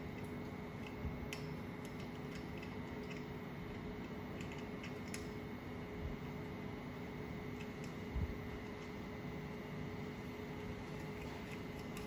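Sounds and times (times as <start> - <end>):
steady hum: 0.0 - 12.0
small metallic clicks: 0.2 - 3.3, 4.0 - 5.4.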